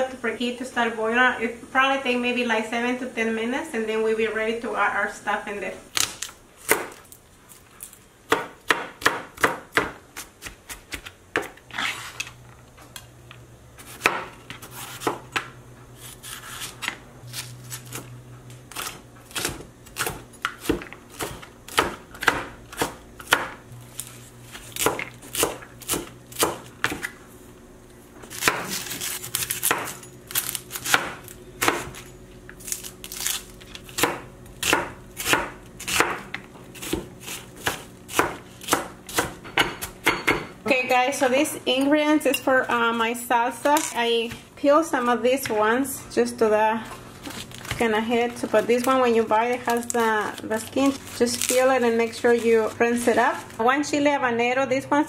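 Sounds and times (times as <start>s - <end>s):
knife chopping on cutting board: 6.6s - 7.0s, 8.3s - 11.9s, 13.8s - 17.0s, 18.7s - 27.2s, 28.3s - 32.0s, 33.9s - 40.5s.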